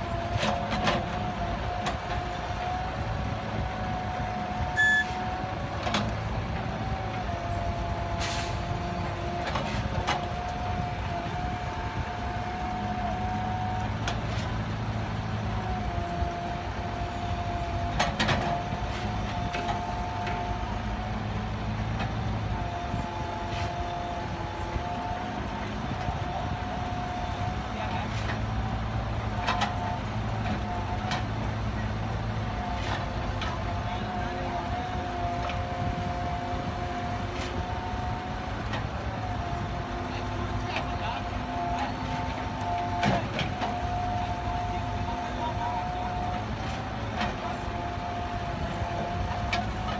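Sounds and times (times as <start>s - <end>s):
diesel machinery running: 0.0s - 49.9s
short beep: 4.8s - 5.2s.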